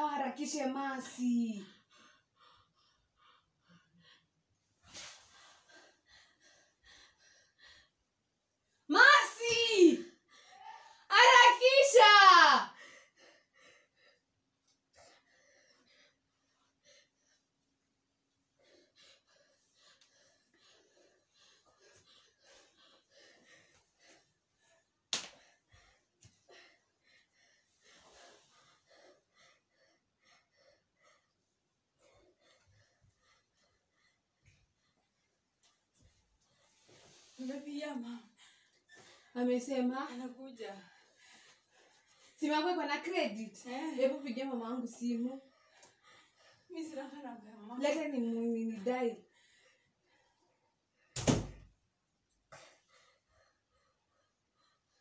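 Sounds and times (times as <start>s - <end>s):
faint puffs of breath: 1.6s - 8.1s.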